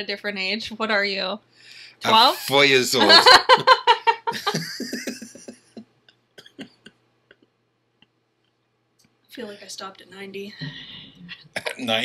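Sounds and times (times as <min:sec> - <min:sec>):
person laughing: 0:02.2 - 0:05.8, 0:06.5 - 0:06.9, 0:10.6 - 0:12.0.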